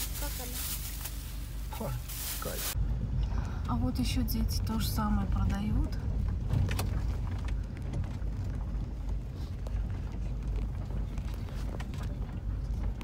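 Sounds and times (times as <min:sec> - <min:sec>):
engine and tyres rumbling: 0:00.0 - 0:13.0
stones clicking under wheels: 0:05.5 - 0:13.0.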